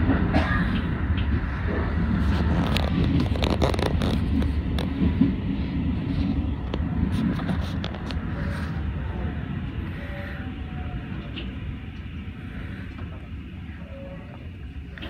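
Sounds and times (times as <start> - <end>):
train rumbling: 0.0 - 15.0
light clicks and scrapes: 2.2 - 5.0, 6.1 - 8.8.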